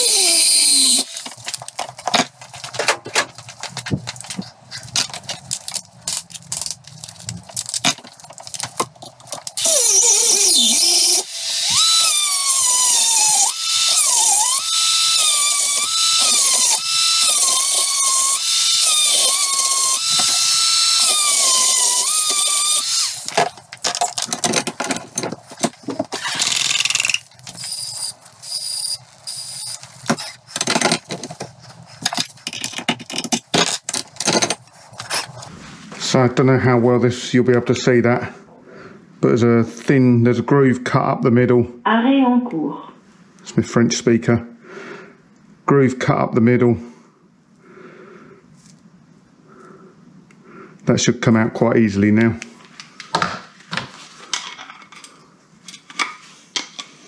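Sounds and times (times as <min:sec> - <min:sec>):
rotary tool grinding steel: 0:00.0 - 0:01.5, 0:09.6 - 0:23.4, 0:26.2 - 0:30.8.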